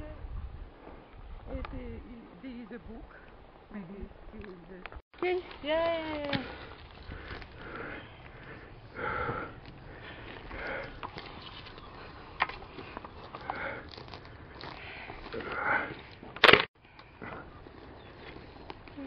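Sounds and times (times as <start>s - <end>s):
person breathing and sniffing: 6.4s - 16.2s.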